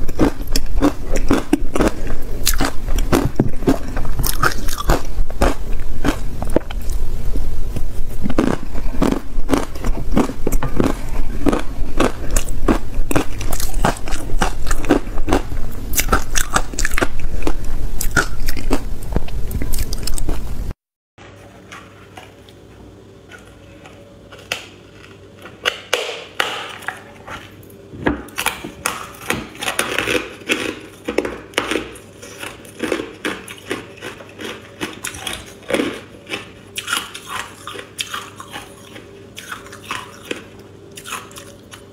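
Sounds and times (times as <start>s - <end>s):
chewing: 0.0s - 7.0s, 8.2s - 20.4s, 28.4s - 41.9s.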